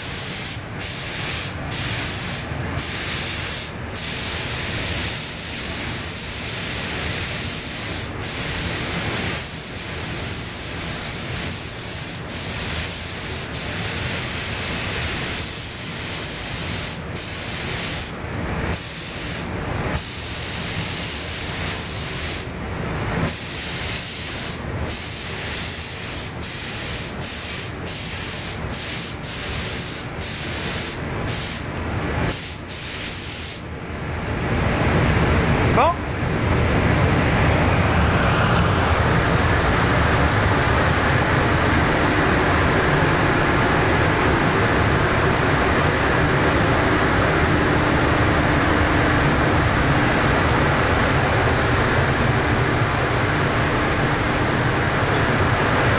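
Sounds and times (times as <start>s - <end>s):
paint spray gun hissing: 0.0s - 18.1s, 23.3s - 31.6s, 32.3s - 33.6s.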